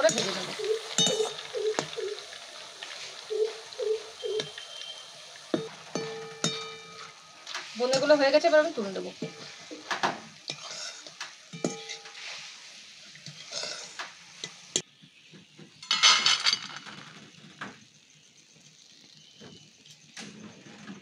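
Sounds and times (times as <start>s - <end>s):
metal ladle scraping a pan: 0.0s - 2.0s, 9.1s - 14.8s
oil sizzling: 0.0s - 15.1s, 15.7s - 20.2s
clatter onto steel plate: 15.8s - 17.3s.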